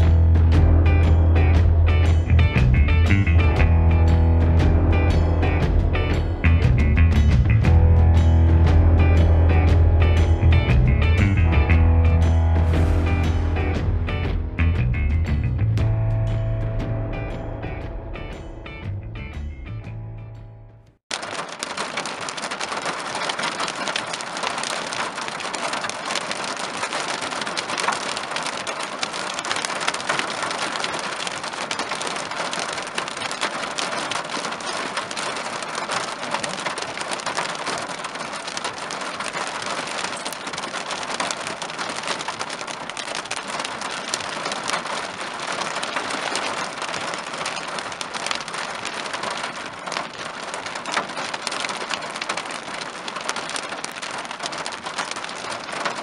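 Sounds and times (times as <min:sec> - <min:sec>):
hail and rain on car roof: 0:21.1 - 0:56.0.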